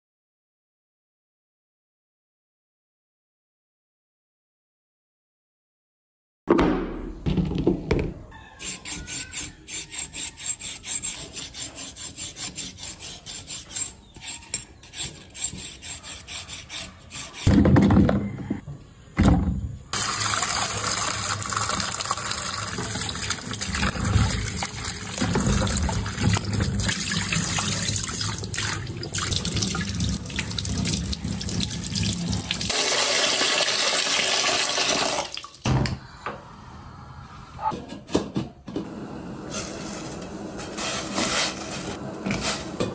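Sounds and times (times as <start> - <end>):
tap water running into sink: 20.0 - 35.6.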